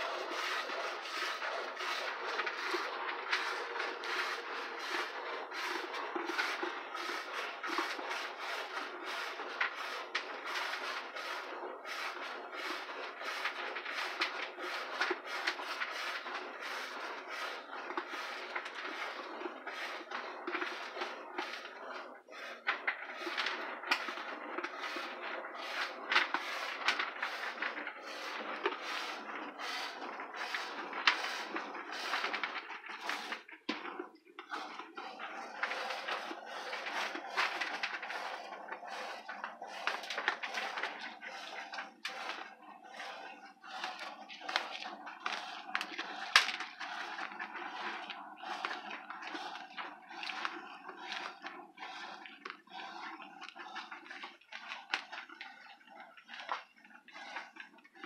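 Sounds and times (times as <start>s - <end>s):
milk squirting into metal pail: 0.0s - 58.0s.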